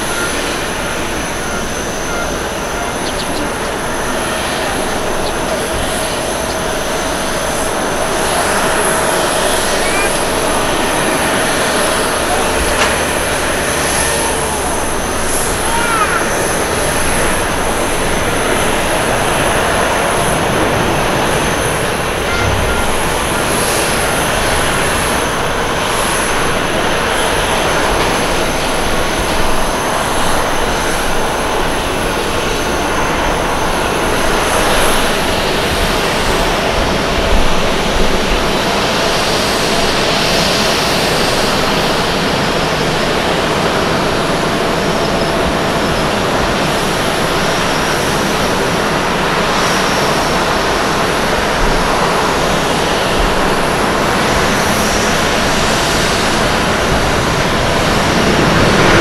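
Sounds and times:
thin high tone: 0.0s - 31.7s
jet engines rushing: 0.0s - 59.0s.

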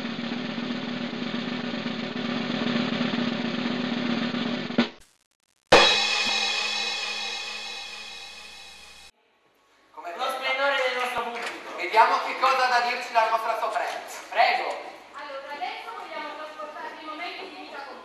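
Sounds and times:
snare drum roll: 1.2s - 5.0s, 5.7s - 9.1s
crash cymbal ringing: 5.7s - 9.1s
sharp drum hit: 5.7s - 9.1s.

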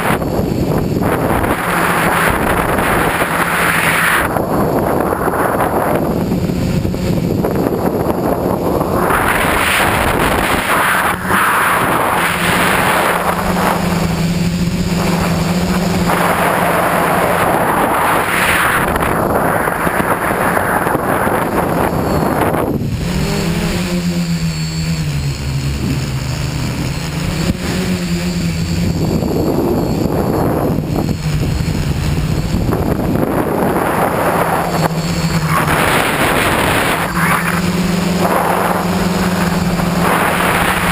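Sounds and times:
drone motors humming: 0.0s - 40.9s
wind rush on microphone: 0.0s - 40.9s.

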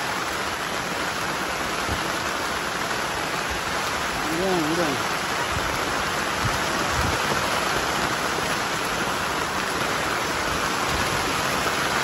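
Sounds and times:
steady rain: 0.0s - 12.0s.

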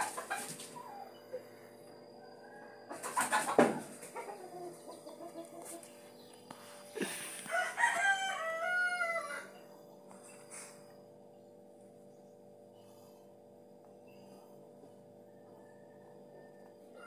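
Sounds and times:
chicken calls: 0.0s - 1.6s, 2.3s - 9.6s
rooster crowing: 2.1s - 4.8s, 7.0s - 9.6s, 15.4s - 17.0s.

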